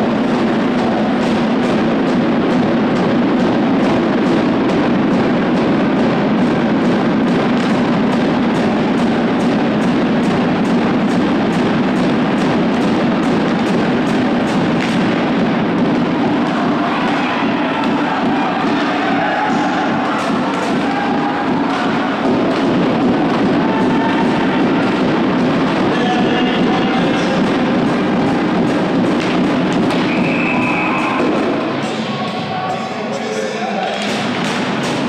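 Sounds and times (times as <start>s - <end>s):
steady drum beat: 0.0s - 32.5s
crowd chanting: 15.1s - 35.0s.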